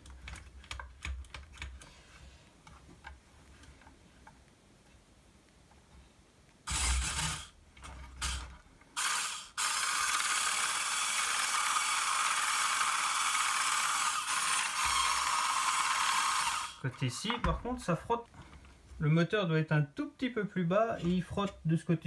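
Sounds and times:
small electric motor whirring: 6.7s - 7.5s, 8.2s - 16.8s.

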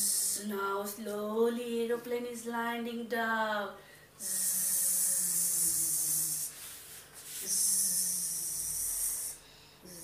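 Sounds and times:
woman making buzzing sounds: 4.2s - 6.6s, 7.4s - 10.0s.

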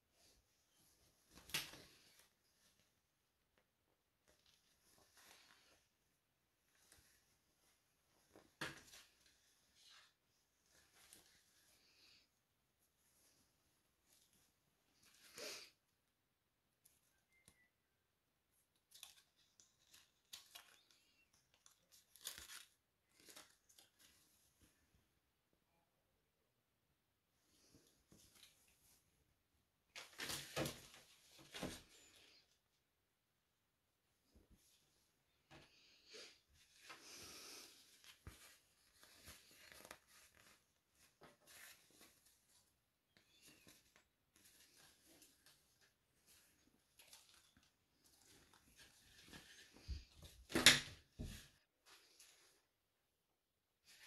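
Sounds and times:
fabric and paper tag rustling: 4.2s - 12.2s, 18.7s - 24.9s, 36.5s - 52.7s.

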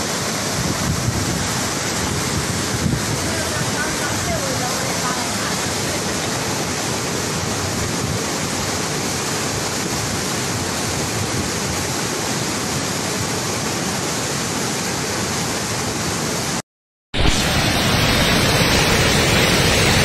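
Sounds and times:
muddy water rushing: 0.0s - 16.6s, 17.2s - 20.0s.

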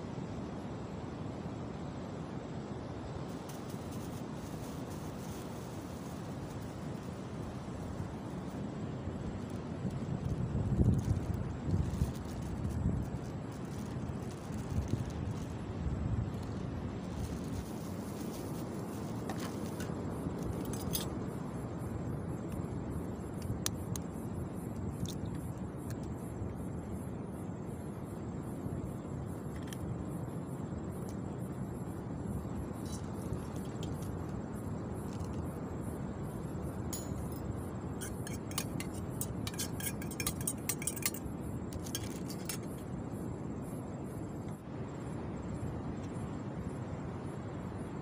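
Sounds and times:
wind: 0.0s - 48.0s
metal spoon clinking on pan and mug: 36.9s - 37.4s, 38.0s - 41.2s.

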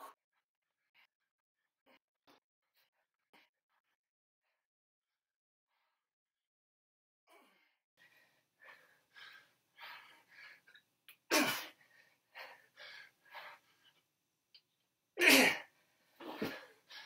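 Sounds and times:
man breathing hard: 7.3s - 10.8s, 11.7s - 14.0s.

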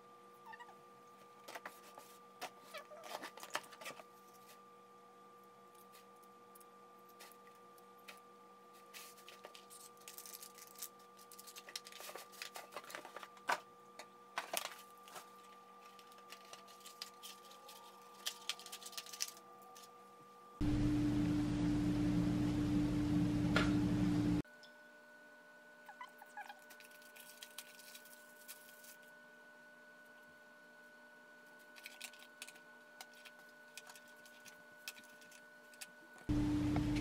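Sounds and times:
faint steady hum: 0.0s - 37.0s
crinkly foil bag rustling: 1.4s - 4.6s, 8.8s - 13.5s, 14.4s - 20.0s, 26.4s - 29.1s, 31.5s - 35.9s
tissue paper rustling: 26.8s - 29.0s.

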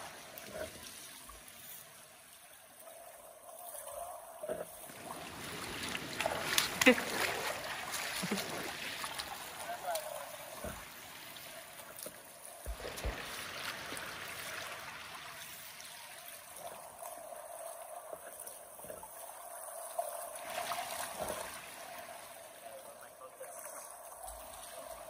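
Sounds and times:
river water rushing: 4.8s - 11.9s, 12.6s - 16.8s.

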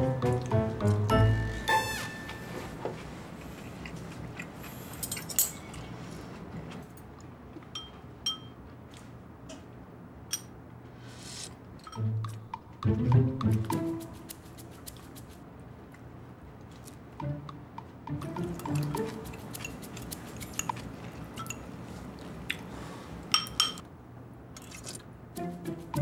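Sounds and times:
cutlery clinking on ceramic bowls: 7.7s - 8.6s, 18.4s - 20.8s, 21.4s - 21.7s, 23.3s - 23.8s.

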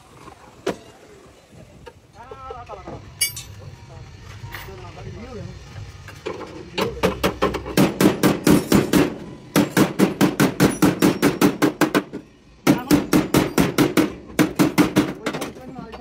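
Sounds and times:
hammer striking sheet steel: 7.2s - 12.1s.

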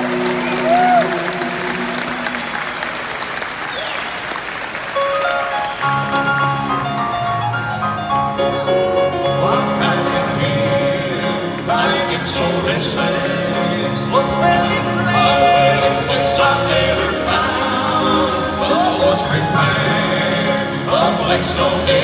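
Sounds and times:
piano accompaniment: 4.8s - 22.0s
men singing in harmony: 9.2s - 22.0s.

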